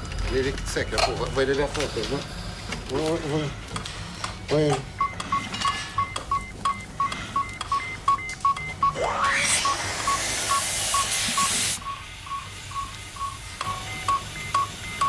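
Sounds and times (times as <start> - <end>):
patient monitor beeping: 4.7 - 15.0
rising whistle: 8.9 - 11.8
loud hiss of gas: 9.0 - 11.8.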